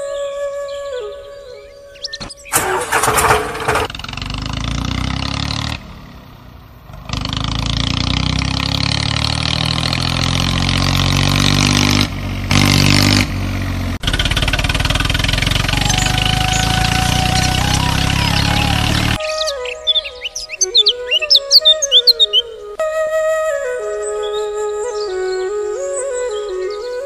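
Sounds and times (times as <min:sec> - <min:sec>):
tractor engine revving: 0:02.2 - 0:19.3.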